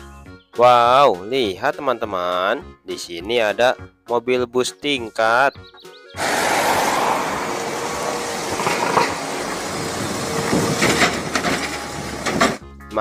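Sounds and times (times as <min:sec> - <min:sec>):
street sound: 0:05.6 - 0:13.0
bus driving past: 0:06.2 - 0:12.6.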